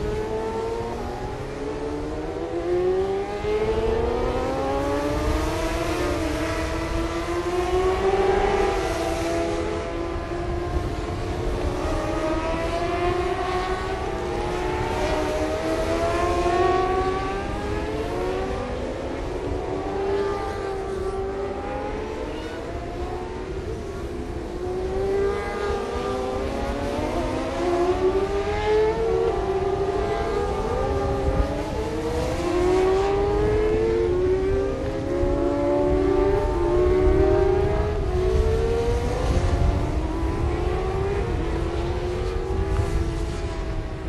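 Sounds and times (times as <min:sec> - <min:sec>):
motorcycle engines racing: 0:00.0 - 0:44.0.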